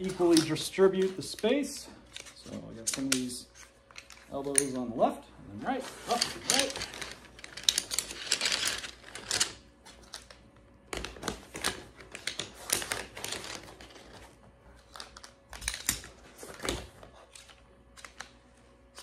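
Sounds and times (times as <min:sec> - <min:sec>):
cot frame clicking and rattling: 0:06.1 - 0:09.6.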